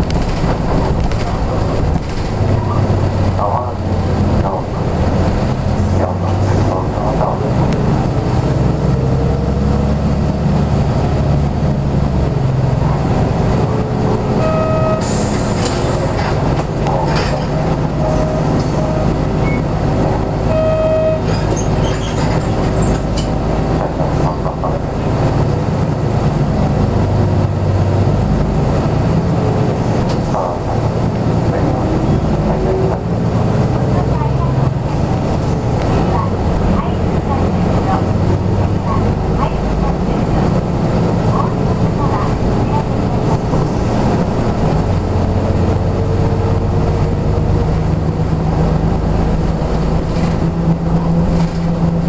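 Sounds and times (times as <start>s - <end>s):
bus diesel engine running: 0.0s - 52.0s
short electronic beeps: 14.4s - 15.1s, 20.5s - 21.3s.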